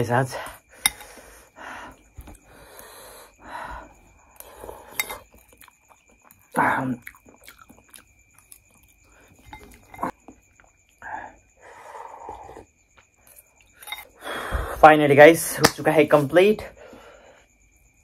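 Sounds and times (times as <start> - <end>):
chewing noodles: 4.2 - 11.0.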